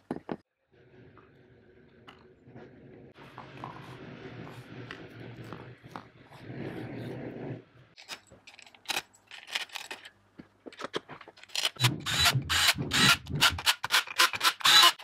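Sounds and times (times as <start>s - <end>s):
metal clicks taps and scrapes: 8.0s - 11.8s.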